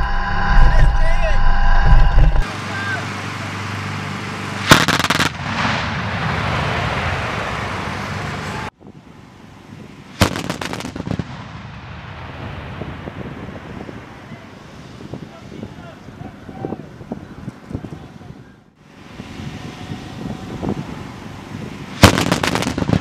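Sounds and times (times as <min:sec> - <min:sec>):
anti-aircraft guns firing bursts: 0:04.7 - 0:05.4, 0:22.0 - 0:23.0
rolling gunfire echo: 0:04.7 - 0:07.5, 0:10.2 - 0:13.0, 0:22.0 - 0:23.0.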